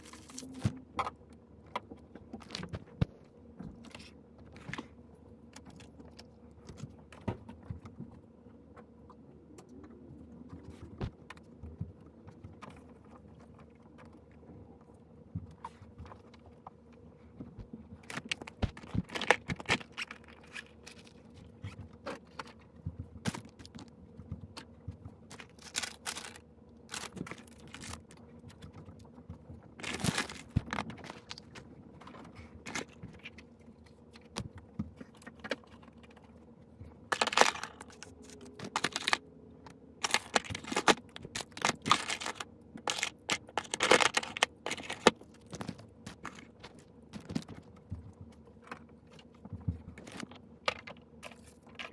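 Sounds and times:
small objects clicking and knocking: 37.1s - 39.3s, 40.0s - 48.1s.

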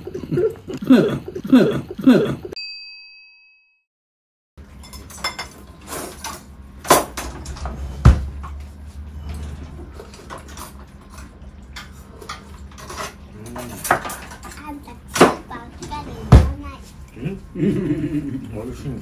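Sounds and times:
bowls and utensils clinking: 4.7s - 6.5s.

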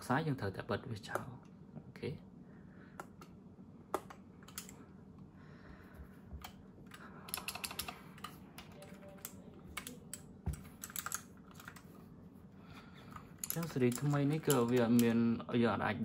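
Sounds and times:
mechanical keyboard typing: 4.0s - 4.8s, 6.4s - 11.9s, 13.4s - 15.2s.

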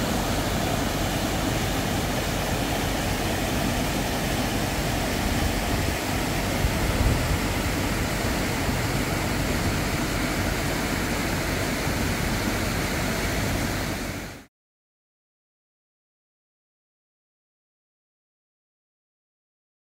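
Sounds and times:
floodwater rushing: 0.0s - 14.5s.

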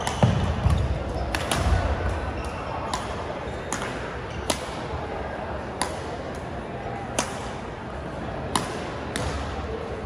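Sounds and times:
rackets striking shuttlecock: 0.0s - 5.0s, 5.7s - 6.5s, 7.1s - 7.6s, 8.5s - 9.6s.

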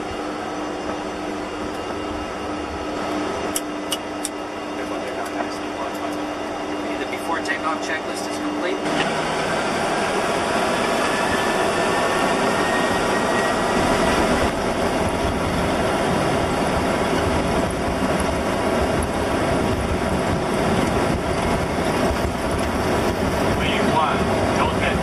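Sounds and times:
faint rising whine: 0.0s - 17.9s
jet engines roaring: 0.0s - 25.0s
takeoff roll rumble: 8.8s - 25.0s.

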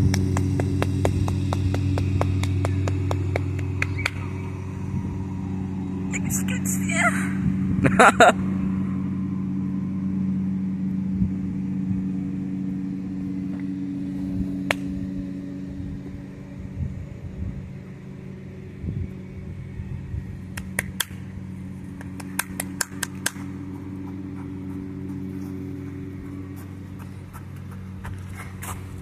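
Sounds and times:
vehicle engine idling: 0.0s - 29.0s
footsteps on dirt path: 23.0s - 29.0s.

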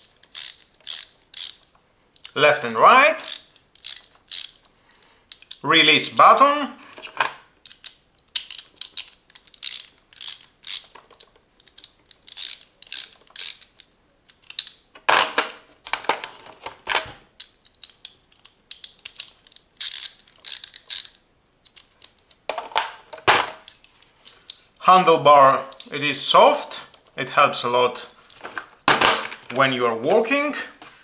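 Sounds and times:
ratchet clicking: 0.2s - 2.4s, 3.2s - 4.6s, 7.6s - 11.0s, 11.6s - 13.8s, 17.4s - 21.2s.

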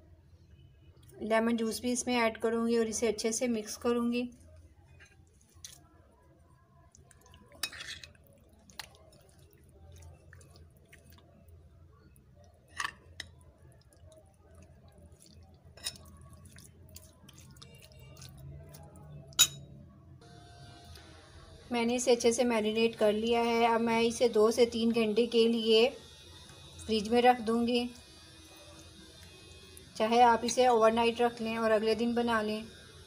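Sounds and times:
metal spoon clinking ceramic bowl: 15.8s - 16.2s, 19.4s - 19.7s.

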